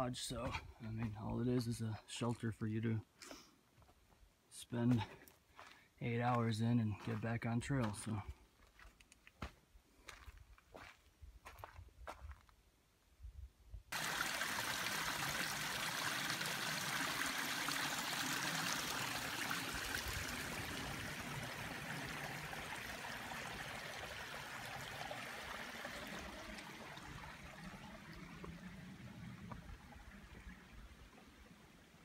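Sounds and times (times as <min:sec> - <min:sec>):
stream water rushing: 0:13.9 - 0:32.0.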